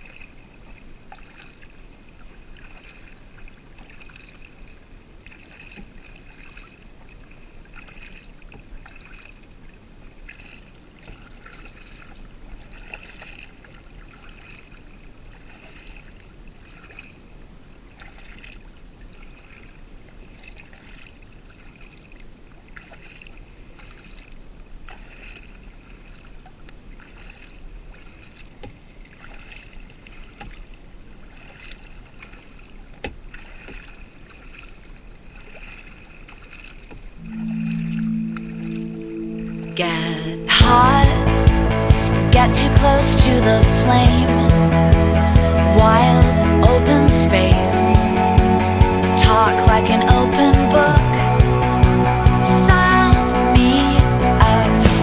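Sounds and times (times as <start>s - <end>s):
paddles splashing in water: 0.0s - 44.5s
water dripping: 35.4s - 41.3s.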